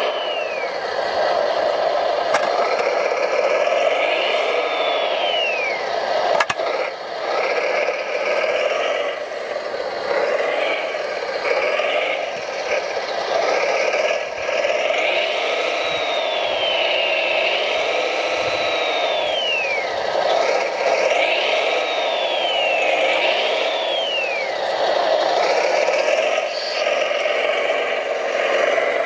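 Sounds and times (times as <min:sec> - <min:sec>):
electric motors whining: 0:00.0 - 0:29.0
sharp click: 0:06.3 - 0:06.6.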